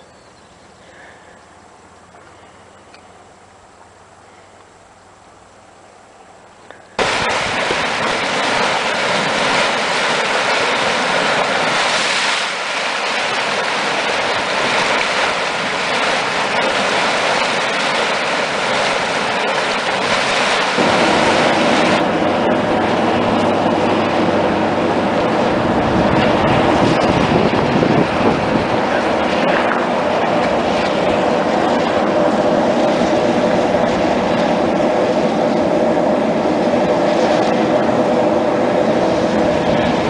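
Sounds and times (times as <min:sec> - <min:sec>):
hot spring water rushing and hissing: 0:01.7 - 0:40.0.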